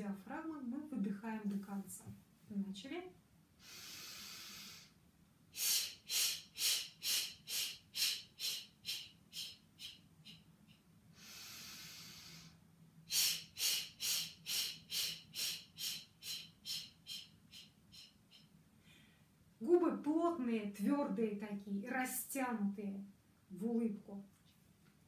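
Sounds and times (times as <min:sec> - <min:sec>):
sharp exhaled puffs: 0:03.6 - 0:05.0, 0:11.2 - 0:16.9
woman inhaling noisily: 0:03.6 - 0:05.0, 0:11.1 - 0:17.7.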